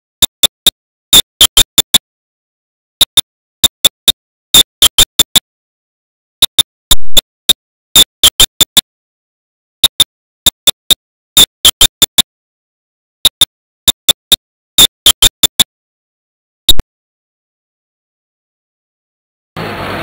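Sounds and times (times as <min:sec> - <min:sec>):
sharp percussive clicks: 0:00.2 - 0:02.0, 0:03.0 - 0:05.4, 0:06.4 - 0:08.8, 0:09.8 - 0:12.3, 0:13.2 - 0:15.7.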